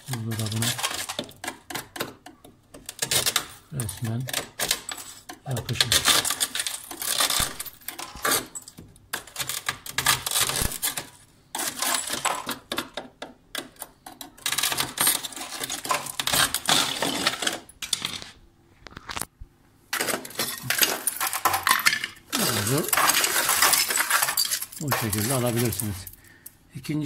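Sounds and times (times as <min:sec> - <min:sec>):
knife scraping ice: 0:09.4 - 0:12.2.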